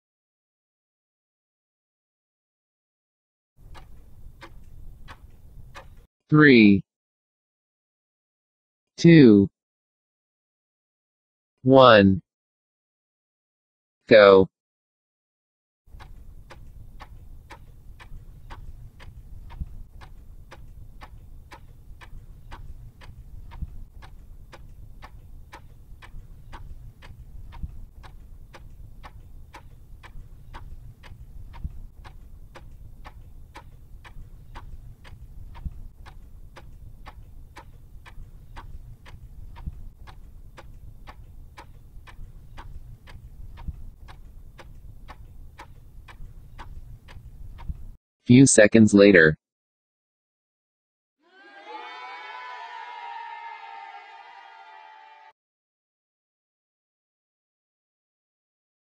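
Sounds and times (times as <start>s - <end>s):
low steady rumble: 3.6s - 6.0s, 15.9s - 48.0s
clock ticking: 3.6s - 6.1s, 15.9s - 48.0s.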